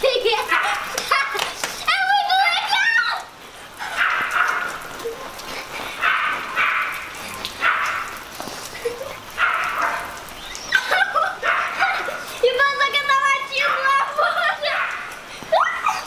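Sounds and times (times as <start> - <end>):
dog barking: 0.5 - 1.0, 4.0 - 4.8, 6.0 - 7.0, 7.6 - 8.2, 9.4 - 10.2, 10.9 - 12.2, 14.7 - 15.1.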